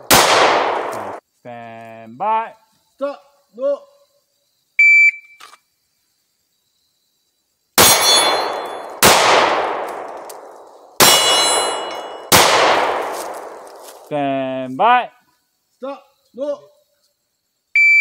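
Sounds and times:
handgun shots: 0.0s - 1.2s, 7.8s - 14.0s
steel targets ringing: 7.8s - 8.9s, 11.0s - 12.3s.

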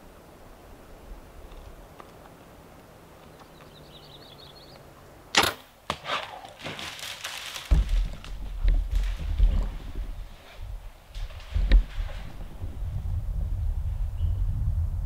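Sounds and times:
rustling brush: 5.9s - 13.1s.

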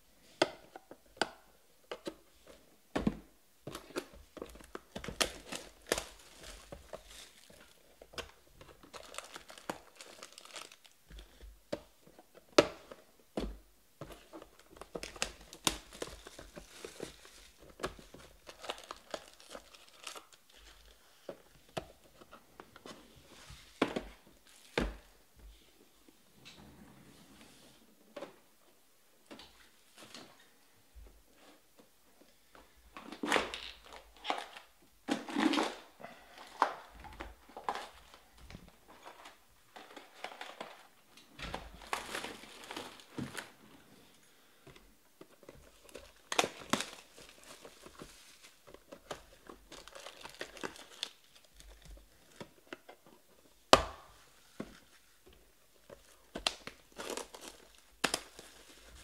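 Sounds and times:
shrink wrap crinkling and tearing: 3.9s - 11.0s, 14.4s - 21.1s, 41.7s - 43.6s, 45.4s - 52.8s, 55.8s - 59.0s.

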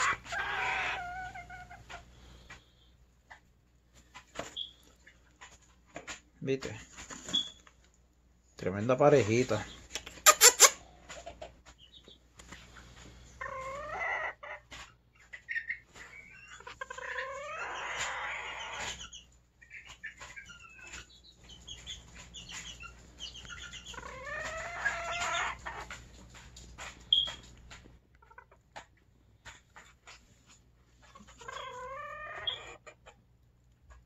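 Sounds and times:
bantam chickens calling: 0.0s - 3.4s, 9.4s - 27.6s, 31.0s - 34.0s.

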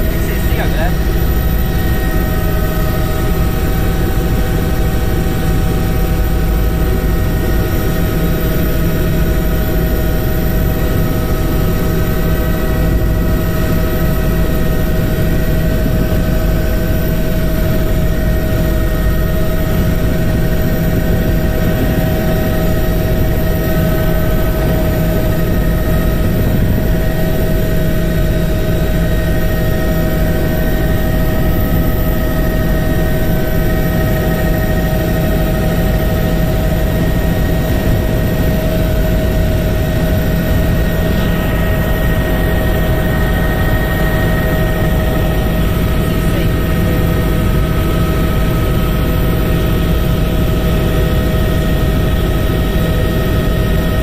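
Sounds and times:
low mechanical rumble: 0.0s - 8.0s, 37.4s - 47.7s
constant humming tones: 0.0s - 54.0s.

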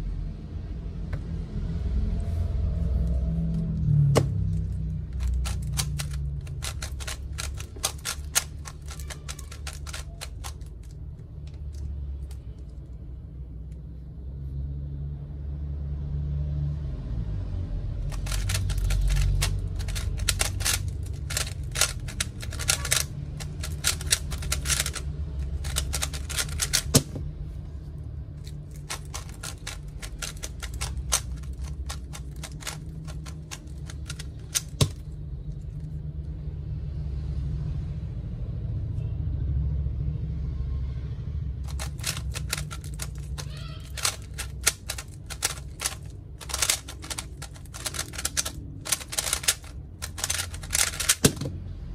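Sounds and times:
puzzle cube plastic clicks: 4.2s - 12.8s, 18.0s - 27.2s, 28.4s - 35.2s, 41.7s - 51.6s.

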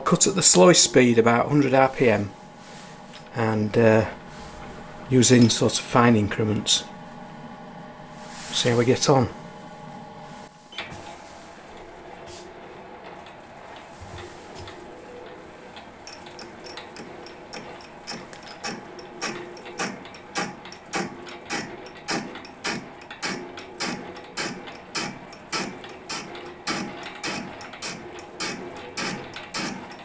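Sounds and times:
metal lathe running: 15.0s - 30.0s.

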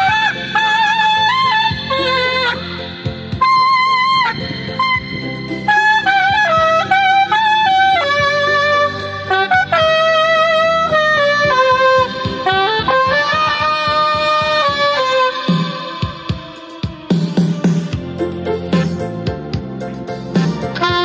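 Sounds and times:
saxophone melody: 0.0s - 21.0s.

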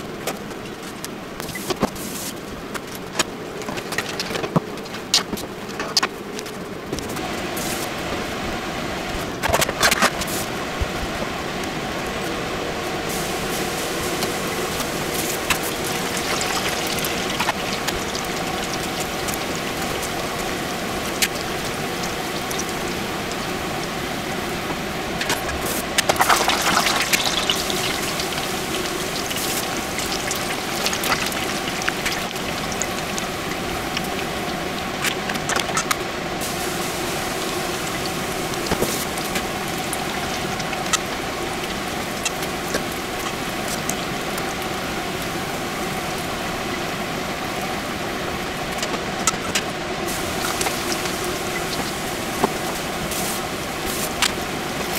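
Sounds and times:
deep-frying oil sizzling and popping: 13.1s - 47.0s, 48.2s - 54.9s.

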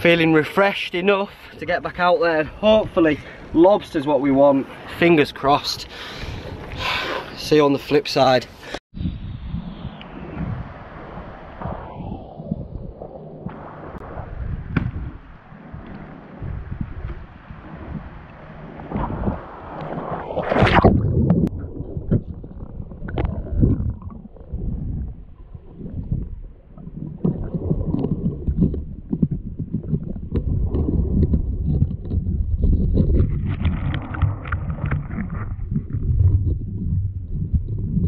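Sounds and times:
muffled underwater rumbling: 9.0s - 38.0s
water splash: 10.0s - 38.0s.

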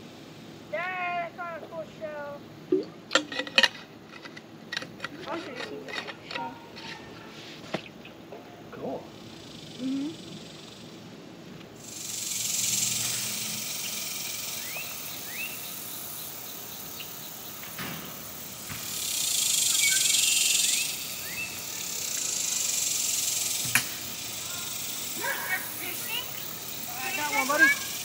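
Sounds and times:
insect chorus hiss: 0.0s - 28.0s
short rising chirps: 19.0s - 23.6s.

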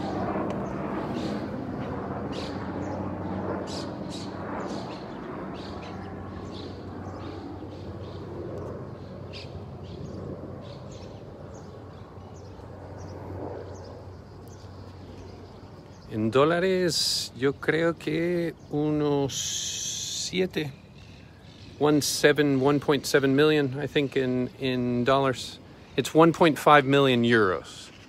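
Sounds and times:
small birds chirping: 0.0s - 28.0s
steady low hum: 0.0s - 28.0s.

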